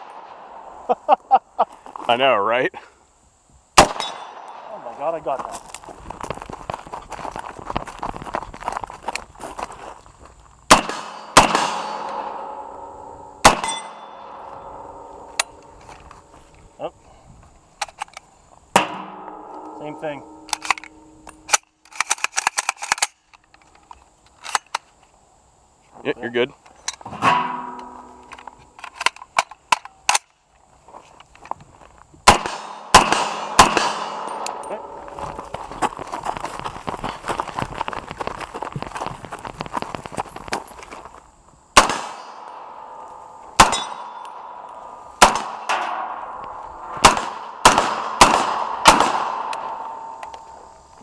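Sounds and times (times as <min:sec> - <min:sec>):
gunshots: 0:03.8 - 0:04.9, 0:10.7 - 0:12.6, 0:13.4 - 0:15.1, 0:32.3 - 0:35.0, 0:41.8 - 0:42.8, 0:43.5 - 0:44.6, 0:45.2 - 0:46.3, 0:46.9 - 0:50.2
metallic ringing: 0:12.4 - 0:15.1, 0:18.8 - 0:21.5, 0:27.2 - 0:28.3
rifle action clicks: 0:20.4 - 0:24.8.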